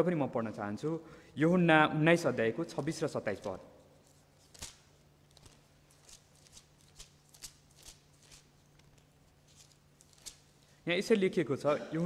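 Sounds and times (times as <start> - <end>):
low steady hum: 0.0 - 12.0
paper pages rustling: 2.8 - 10.6.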